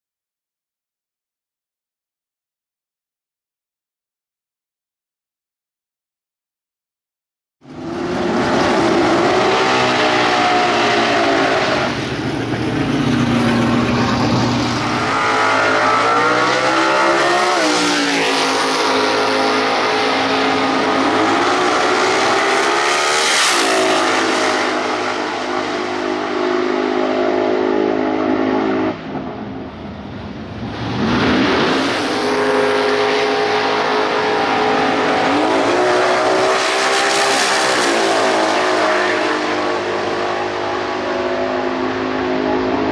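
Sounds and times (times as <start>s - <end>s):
race car engine revving: 7.7s - 29.2s, 30.6s - 42.9s.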